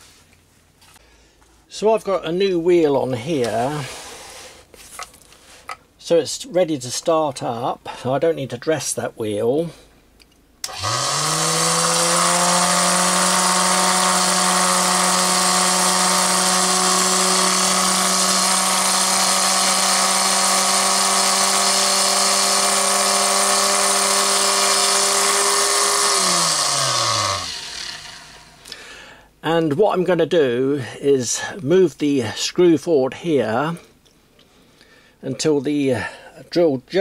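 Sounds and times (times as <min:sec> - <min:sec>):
grinder motor humming and whining: 0:10.7 - 0:28.7.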